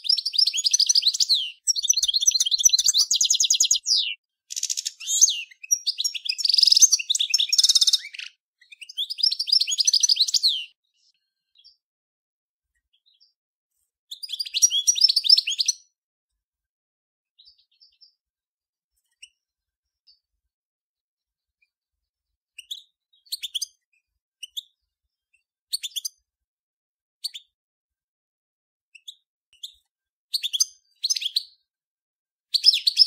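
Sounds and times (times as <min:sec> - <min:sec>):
goldfinch twittering song: 0:00.0 - 0:10.8, 0:14.1 - 0:15.9, 0:32.5 - 0:33.0.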